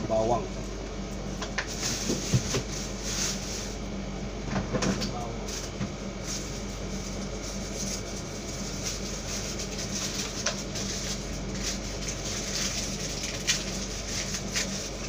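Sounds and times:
appliance hum and fan noise: 0.0 - 15.0.

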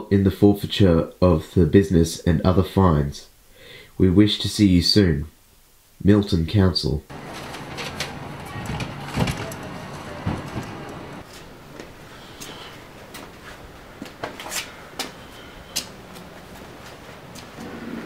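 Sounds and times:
glass door knocking shut: 7.4 - 11.2.

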